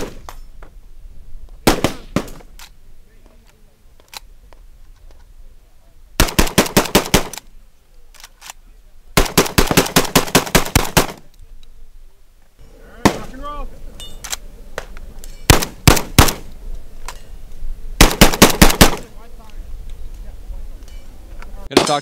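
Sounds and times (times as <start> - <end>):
shotgun shots: 0.0 - 0.3, 1.6 - 2.5, 6.2 - 7.4, 9.2 - 11.2, 13.0 - 13.4, 15.5 - 16.5, 18.0 - 19.1.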